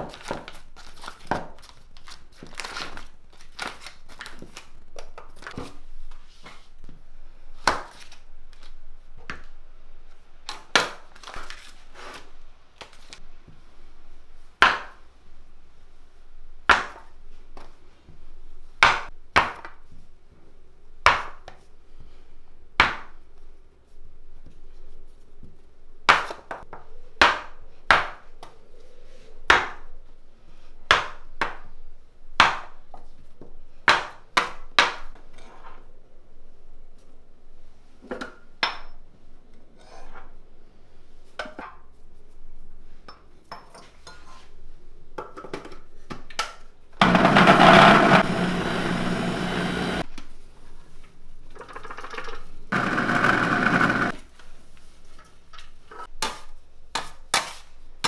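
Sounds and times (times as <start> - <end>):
electric mixer motor whirring: 47.0 - 50.0, 52.7 - 54.1.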